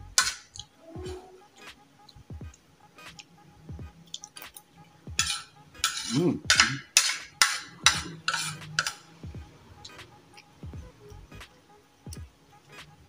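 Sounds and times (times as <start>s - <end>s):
cutlery scraping on a plate: 0.2s - 0.6s, 5.2s - 9.1s.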